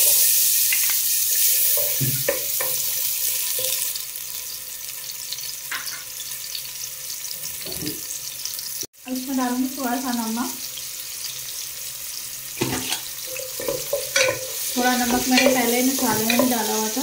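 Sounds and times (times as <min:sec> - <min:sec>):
onions sizzling in oil: 0:00.0 - 0:17.0
wooden spatula stirring: 0:13.3 - 0:16.8.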